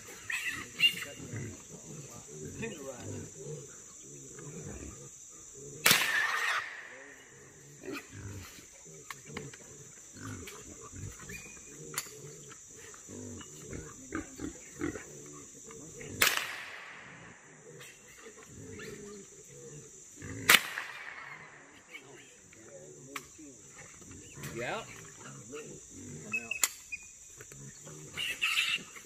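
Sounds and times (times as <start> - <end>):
hogs grunting: 0.0 - 16.3, 17.1 - 26.6, 27.2 - 29.0
rifle shots: 5.8 - 6.9, 16.2 - 17.2, 20.5 - 21.4.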